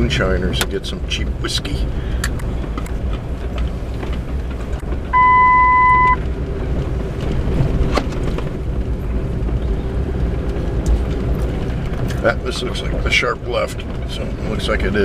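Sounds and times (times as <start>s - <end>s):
truck engine and tyres rumbling: 0.0s - 15.0s
electronic beep: 5.2s - 6.2s.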